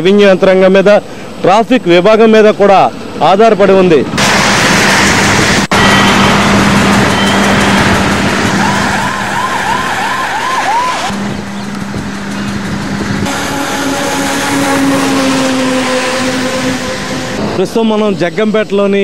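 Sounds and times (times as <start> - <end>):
traffic on wet road: 4.2 - 18.4
warbling siren: 5.7 - 17.6
steady pitched tone: 13.2 - 18.6.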